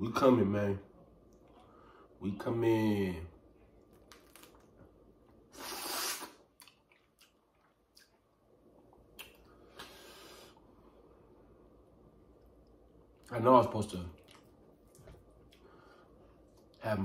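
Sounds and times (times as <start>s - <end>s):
wet squishy peeling and eating: 3.8s - 4.8s, 5.6s - 9.5s, 14.1s - 15.7s.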